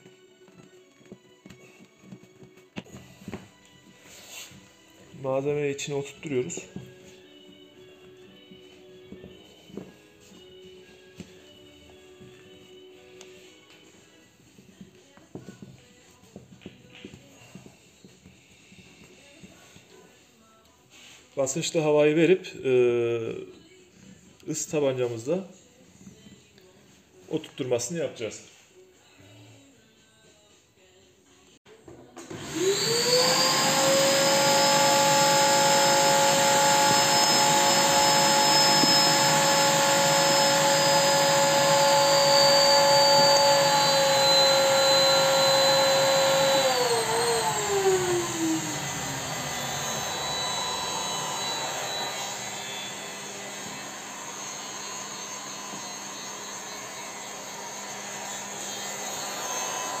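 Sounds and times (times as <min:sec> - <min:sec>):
heat gun fan whine: 0:32.3 - 1:00.0.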